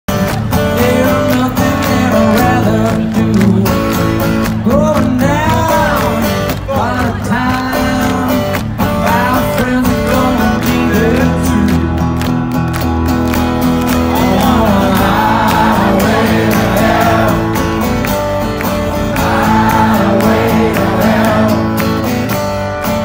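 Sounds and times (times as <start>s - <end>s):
strummed acoustic guitar: 0.1s - 23.0s
man singing: 0.6s - 12.0s, 14.0s - 17.8s, 19.1s - 21.8s.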